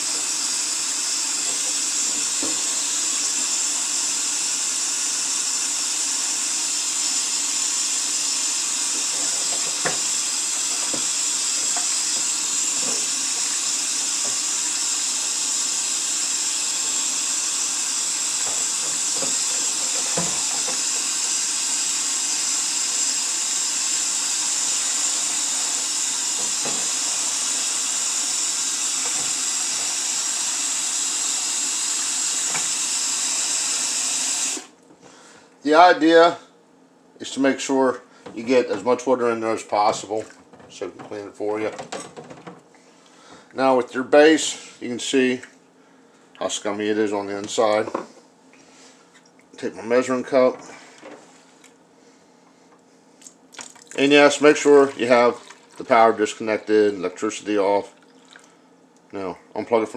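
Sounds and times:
faucet running into metal sink: 0.0 - 34.7, 53.6 - 56.3.

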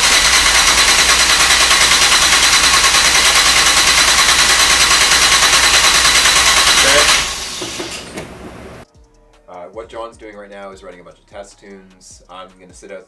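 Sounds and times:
car engine cranking on starter: 0.0 - 8.8.

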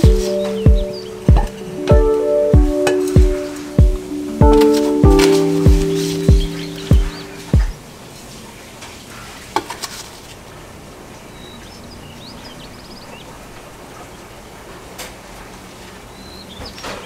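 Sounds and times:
bird chirps: 0.0 - 7.8.

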